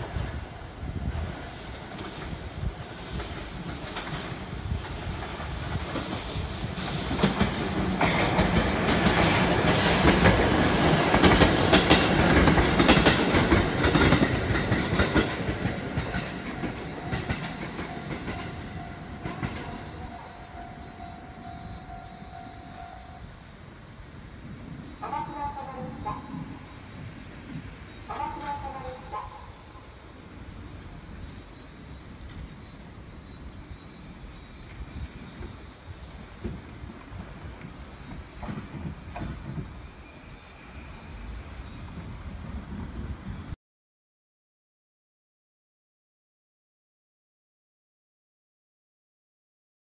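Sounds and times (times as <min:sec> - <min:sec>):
electric train passing: 0:00.0 - 0:43.6
wheels clicking over rail joints: 0:01.0 - 0:22.9.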